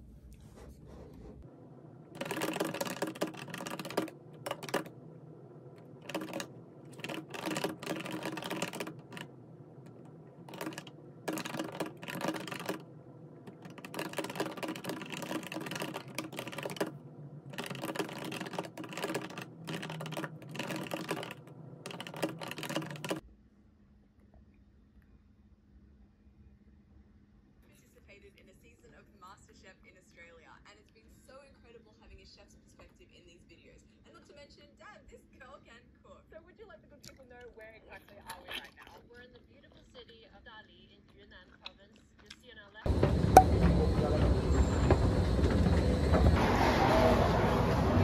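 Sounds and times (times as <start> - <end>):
computer keyboard key clicks: 2.2 - 4.9, 6.0 - 9.3, 10.5 - 12.8, 13.5 - 17.0, 17.6 - 23.2.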